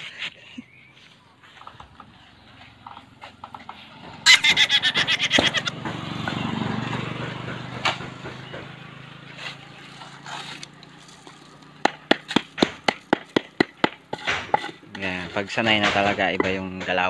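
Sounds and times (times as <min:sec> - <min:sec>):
vehicle engine hum: 0:00.0 - 0:16.0
plank pounding wet concrete: 0:03.4 - 0:17.0.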